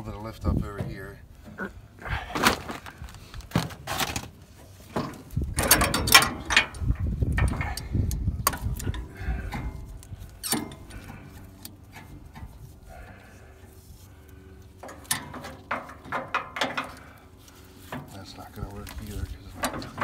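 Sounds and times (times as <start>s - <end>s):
metal clanks and scrapes: 3.5s - 12.8s, 14.7s - 20.0s.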